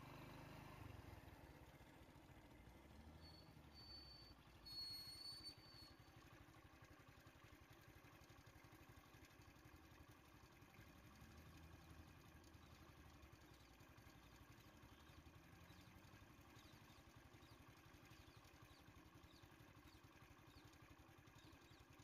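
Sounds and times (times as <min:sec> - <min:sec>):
vehicle engine idling: 0:00.0 - 0:22.0
short high whistling tones: 0:03.2 - 0:06.1.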